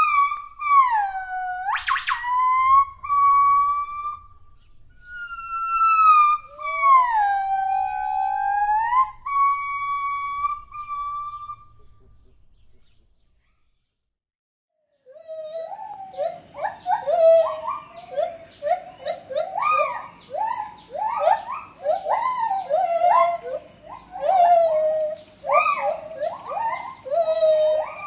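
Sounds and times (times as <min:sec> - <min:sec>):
gibbon whistle-like calls: 0:00.0 - 0:12.1, 0:15.1 - 0:28.0.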